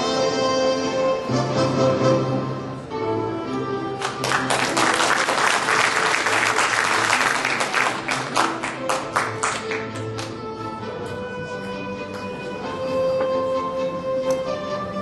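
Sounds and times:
background music: 0.0 - 15.0
audience applauding: 4.0 - 10.4.

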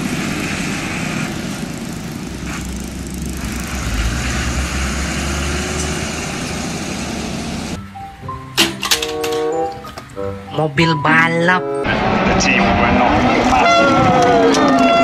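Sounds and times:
truck diesel engine: 0.0 - 10.4, 11.8 - 15.0
road noise: 0.0 - 15.0.

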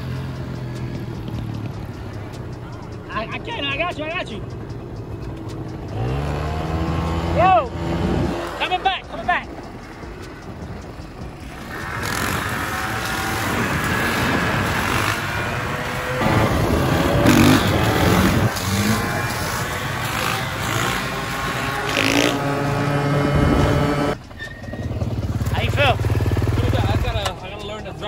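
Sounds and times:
dirt bike engine revving: 5.5 - 27.6.

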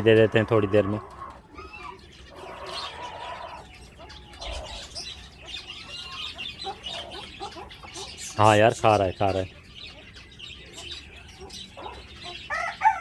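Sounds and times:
small birds chirping: 0.0 - 13.0
fowl clucking: 5.8 - 8.2.

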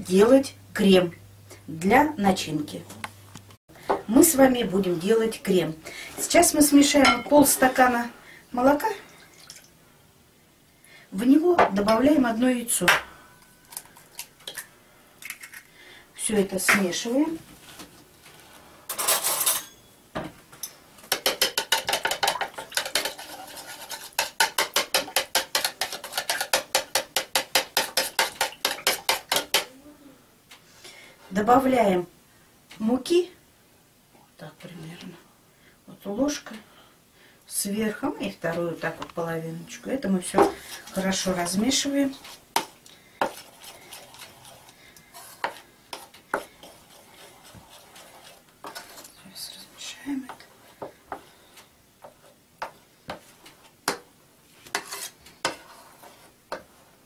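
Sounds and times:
spoon scraping in bowl: 21.4 - 29.6, 40.7 - 49.2, 54.6 - 56.7.

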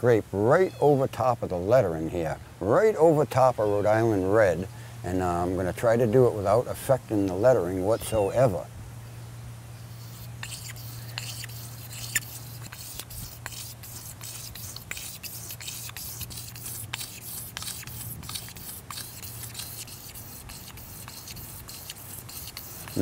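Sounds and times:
knife blade scraping varnish off wood: 9.9 - 23.0.

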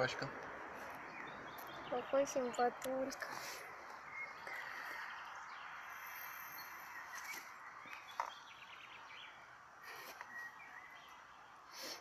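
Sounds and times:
distant bird chirps: 0.0 - 12.0.

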